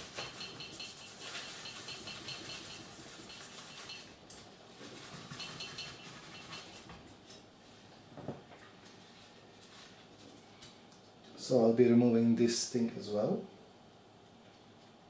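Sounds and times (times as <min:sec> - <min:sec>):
cloth rubbing on metal plate: 0:00.0 - 0:04.1, 0:04.8 - 0:06.9.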